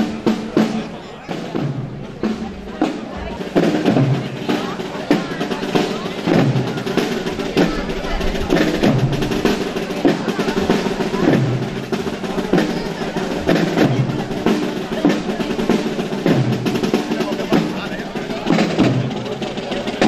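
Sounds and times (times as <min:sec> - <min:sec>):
slow bass drum beat: 0:00.0 - 0:20.0
snare drums rolling: 0:00.0 - 0:20.0.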